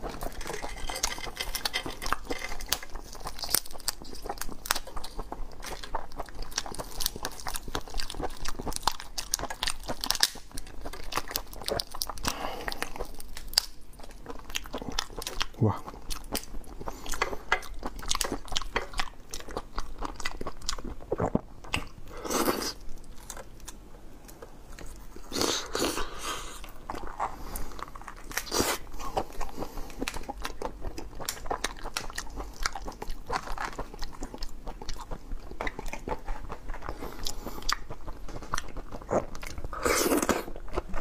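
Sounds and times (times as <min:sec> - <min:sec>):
chewing and biting: 0:00.0 - 0:41.0.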